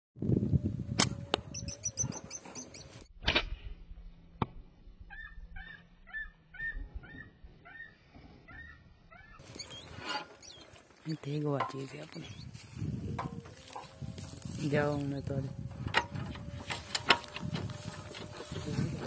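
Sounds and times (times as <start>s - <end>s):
sharp cracks: 1.0s - 1.4s
lapwing calling: 1.0s - 3.1s, 5.1s - 11.2s, 12.0s - 19.0s
quick high bird calls: 5.1s - 10.8s.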